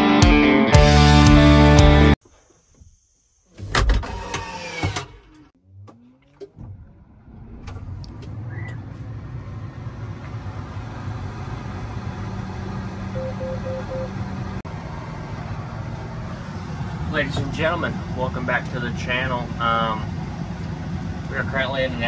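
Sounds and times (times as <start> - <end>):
diesel engine hum: 5.3 - 22.0
short beeps: 13.2 - 14.1.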